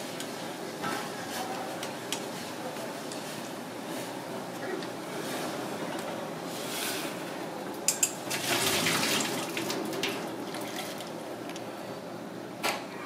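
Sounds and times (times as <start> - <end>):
water pouring into metal sink: 8.3 - 11.2.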